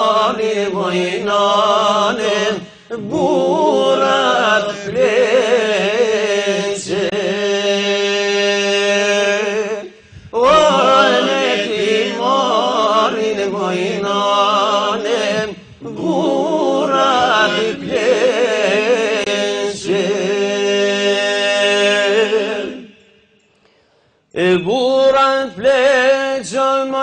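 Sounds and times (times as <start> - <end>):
man singing chant: 24.4 - 27.0.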